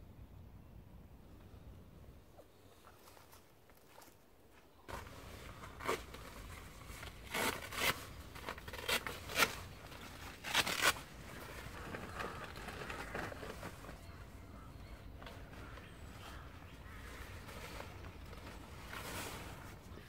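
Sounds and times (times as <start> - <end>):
soft rustling: 2.4 - 20.0
gear crinkling and scraping: 4.9 - 20.0.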